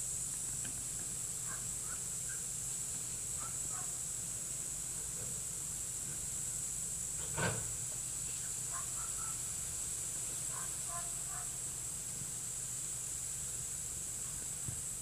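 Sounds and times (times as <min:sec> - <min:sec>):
high-pitched hiss: 0:00.0 - 0:15.0.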